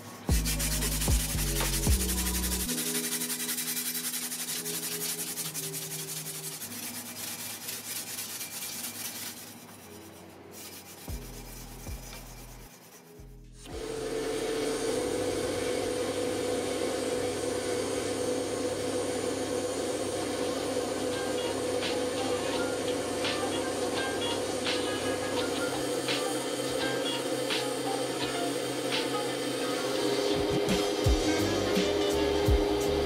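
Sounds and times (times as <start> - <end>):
sandpaper rubbing on steel blade: 0.0 - 13.2
drill press humming: 13.7 - 31.8.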